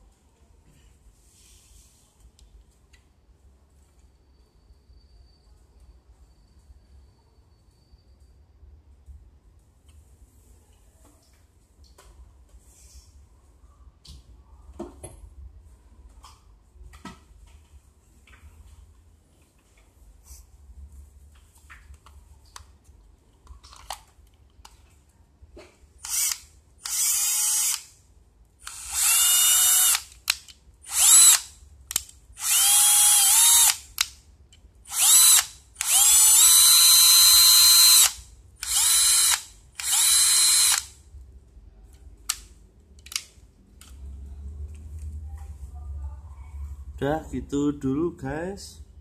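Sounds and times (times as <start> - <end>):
cordless drill motor whine: 26.0 - 27.8, 28.6 - 30.1, 30.9 - 31.5, 32.4 - 33.9, 34.9 - 41.0.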